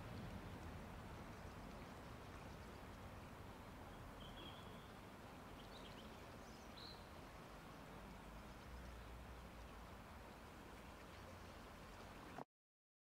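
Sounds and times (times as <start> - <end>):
faint bird chirps: 3.9 - 7.1.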